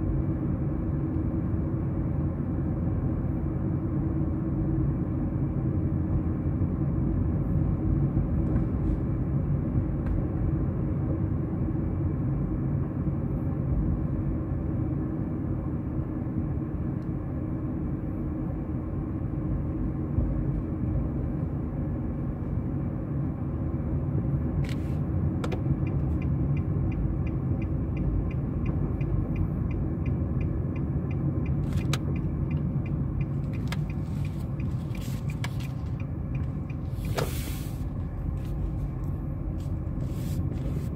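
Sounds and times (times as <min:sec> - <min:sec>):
car engine and road rumble: 0:00.0 - 0:40.9
turn signal ticking: 0:24.4 - 0:40.6
short hiss: 0:37.0 - 0:37.9.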